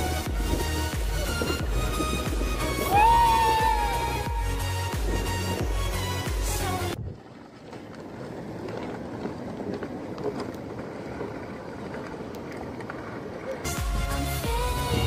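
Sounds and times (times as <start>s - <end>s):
sledge scraping over ground: 0.0s - 3.2s.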